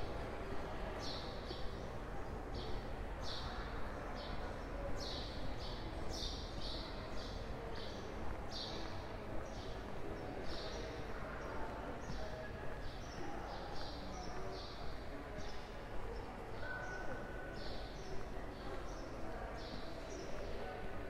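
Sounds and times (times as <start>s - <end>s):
footsteps on pavement: 6.6s - 16.1s.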